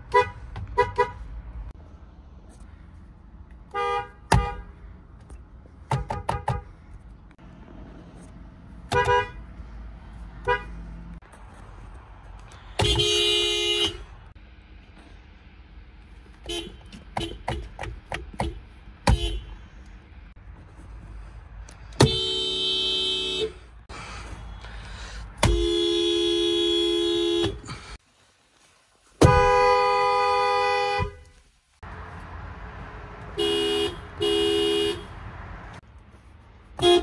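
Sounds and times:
car horns honking: 0.0s - 1.5s, 3.7s - 4.8s, 5.8s - 6.8s, 8.8s - 9.6s, 10.4s - 10.8s, 12.6s - 14.2s, 16.4s - 19.6s, 22.0s - 23.7s, 25.4s - 27.9s, 29.2s - 31.4s, 33.2s - 35.5s, 36.8s - 37.0s.

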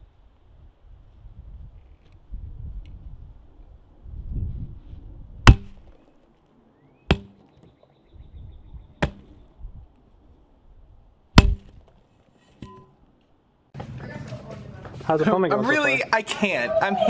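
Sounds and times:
metal pipe smashing watermelons: 5.5s - 5.8s, 7.1s - 7.4s, 11.4s - 11.7s.

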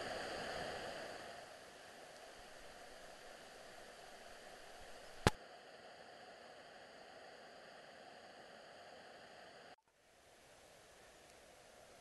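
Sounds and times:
creek rushing over rocks: 0.0s - 5.4s
sharp click: 5.2s - 5.4s.

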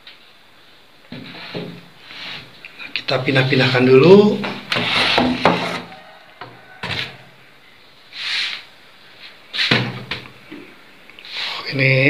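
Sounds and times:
wooden box scraping: 4.5s - 6.1s
wooden knocks: 4.8s - 7.0s.

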